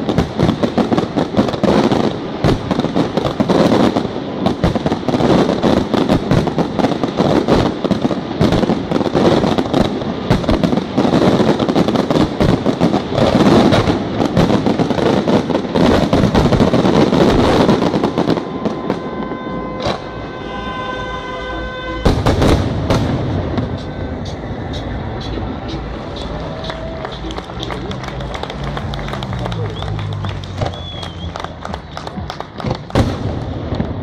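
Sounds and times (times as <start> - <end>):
crackling firework sparks: 0.0 - 20.2, 26.1 - 34.0
steady pitched tone: 23.3 - 31.6.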